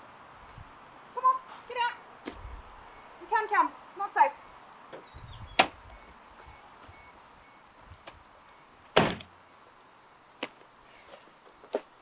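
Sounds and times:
high insect buzz: 0:00.0 - 0:12.0
heavy thud: 0:09.0 - 0:09.3.

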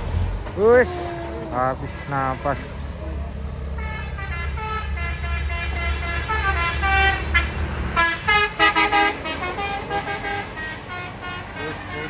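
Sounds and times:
truck diesel engine labouring: 0:00.0 - 0:12.0
vehicle horn toots: 0:03.8 - 0:12.0.

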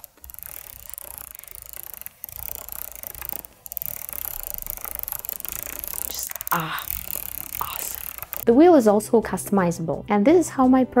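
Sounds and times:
wheel detents clicking rapidly: 0:00.0 - 0:08.4.

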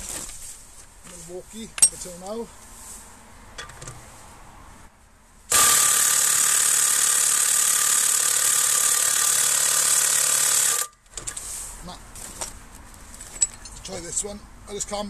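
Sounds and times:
impact wrench hammering: 0:05.5 - 0:11.0.

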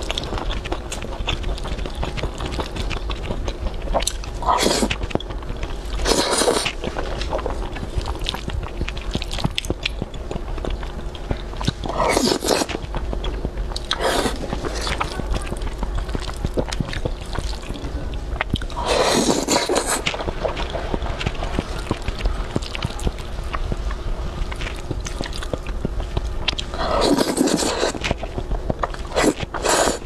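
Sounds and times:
wet chewing: 0:00.0 - 0:30.0
noodle slurping: 0:04.4 - 0:05.0, 0:06.0 - 0:06.8, 0:11.9 - 0:12.8, 0:13.8 - 0:15.2, 0:18.7 - 0:20.2, 0:26.7 - 0:28.1, 0:29.1 - 0:30.0.

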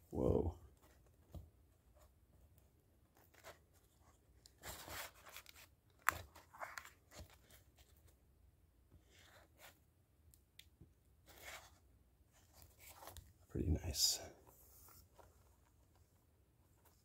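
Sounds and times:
comic book pages turning: 0:03.2 - 0:08.1.

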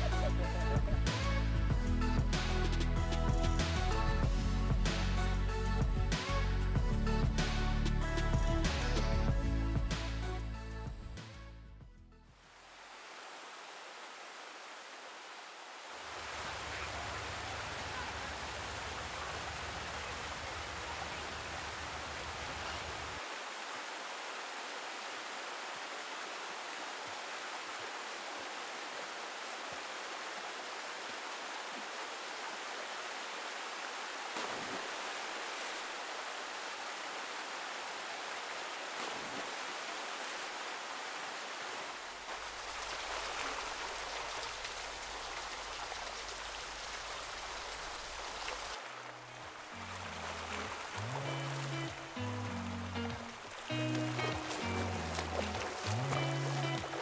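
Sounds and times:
small waterfalls cascading: 0:00.0 - 0:10.4, 0:12.4 - 0:57.0
mountain stream rushing: 0:12.4 - 0:57.0.

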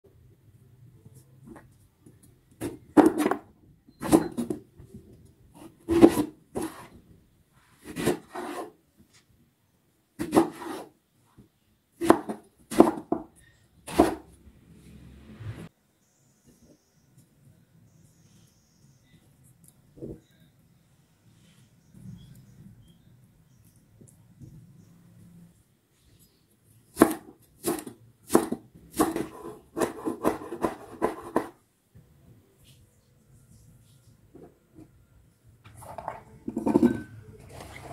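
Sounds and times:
knife slicing leek on wood: 0:05.9 - 0:06.8, 0:10.2 - 0:10.8, 0:12.0 - 0:13.1, 0:13.9 - 0:14.2, 0:26.9 - 0:31.5.

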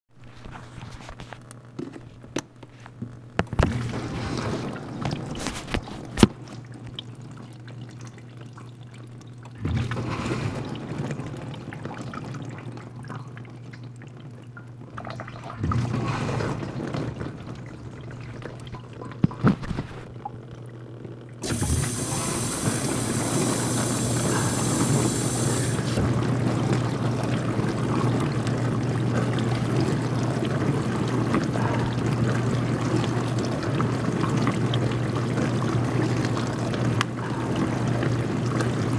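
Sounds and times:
water rushing and splashing: 0:21.4 - 0:28.3
dishwasher pump motor humming: 0:21.4 - 0:38.9.

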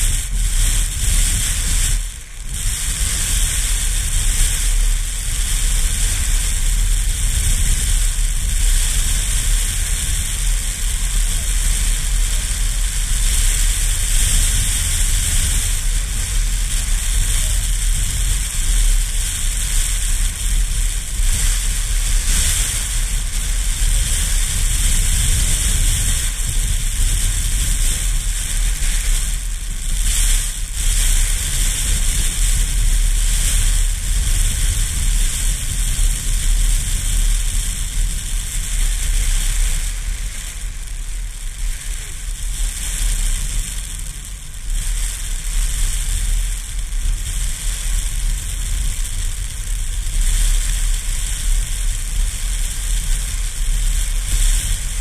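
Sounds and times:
wind buffeting microphone: 0:00.0 - 0:43.7.

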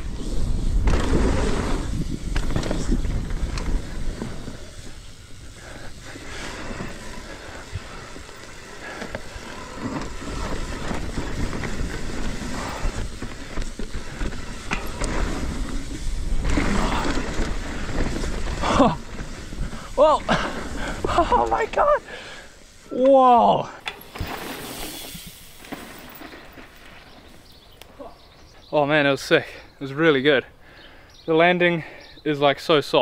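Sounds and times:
wind rumbling on microphone: 0:00.0 - 0:21.6
bike rattles and clicks: 0:00.0 - 0:28.6
bike tyres rolling over dirt: 0:00.0 - 0:29.2.

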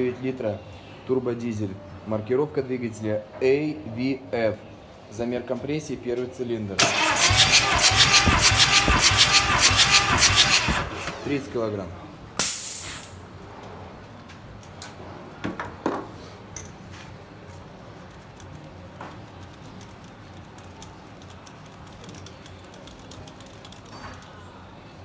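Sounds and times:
gauge venting hiss: 0:12.4 - 0:13.2
hand tools clicking and rattling: 0:18.1 - 0:24.4.

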